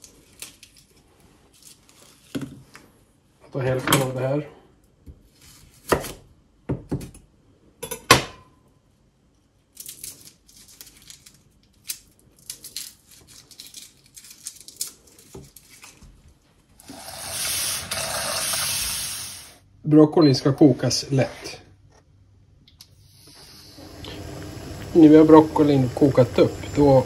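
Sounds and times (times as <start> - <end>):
garlic skins crackling: 9.8 - 16.0.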